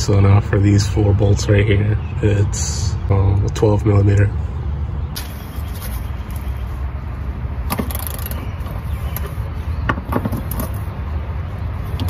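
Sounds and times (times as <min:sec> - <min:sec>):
ratchet clicking: 0:07.7 - 0:08.4.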